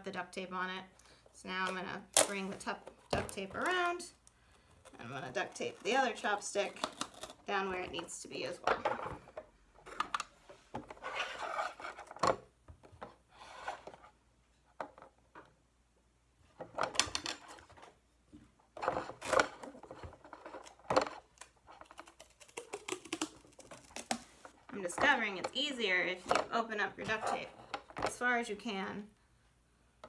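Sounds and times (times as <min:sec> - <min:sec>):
duct tape ripping and rubbing: 0:05.4 - 0:07.5, 0:20.6 - 0:24.5.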